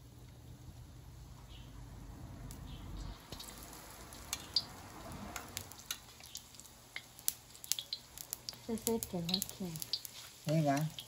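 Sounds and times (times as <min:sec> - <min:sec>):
food sizzling in hot oil: 0:02.4 - 0:11.0
oil pops and crackles: 0:03.3 - 0:11.0.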